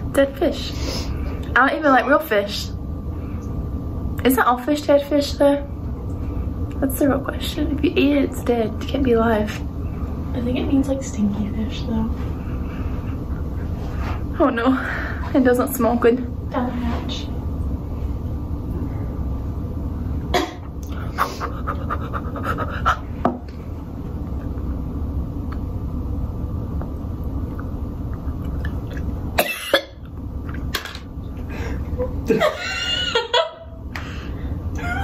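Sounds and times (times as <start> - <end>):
steady low hum: 0.0 - 35.0
cough-like burst: 29.4 - 30.0.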